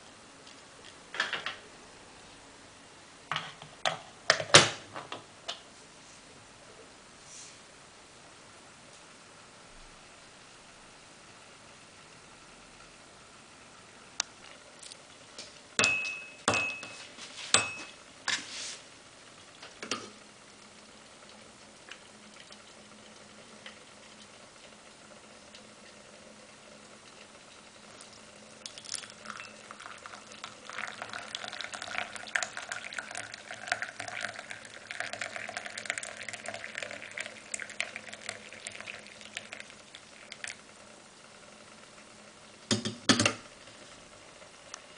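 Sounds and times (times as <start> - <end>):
tea pouring into cup: 21.2 - 24.7, 27.1 - 40.6.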